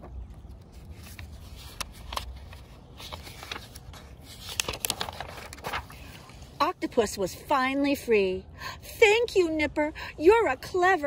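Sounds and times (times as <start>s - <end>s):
book pages rustling: 0.0s - 6.6s.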